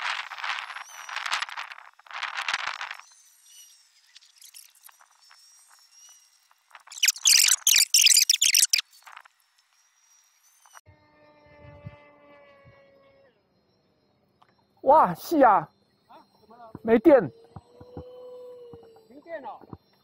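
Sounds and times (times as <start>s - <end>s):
faint high chirps: 2.9s - 10.8s, 12.6s - 20.0s.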